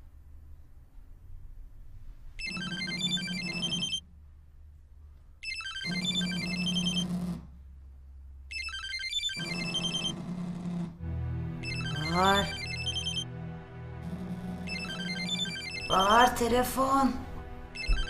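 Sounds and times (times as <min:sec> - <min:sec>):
phone ringtone melody: 0:02.4 - 0:04.0, 0:05.4 - 0:07.1, 0:08.5 - 0:10.2, 0:11.6 - 0:13.4, 0:14.0 - 0:16.4, 0:17.7 - 0:18.0.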